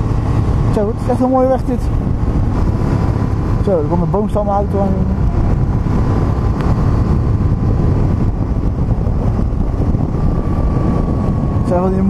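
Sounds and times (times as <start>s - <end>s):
motorcycle engine running: 0.0s - 12.0s
wind rush on microphone: 0.0s - 12.0s.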